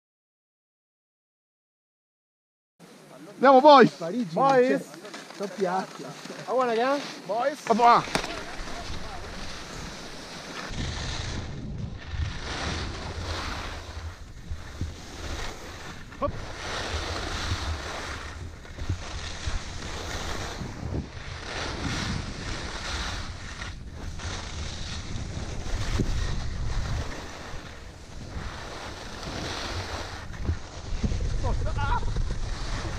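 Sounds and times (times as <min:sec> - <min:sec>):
skis scraping on snow: 0:02.9 - 0:32.9
wind on microphone: 0:08.4 - 0:32.9.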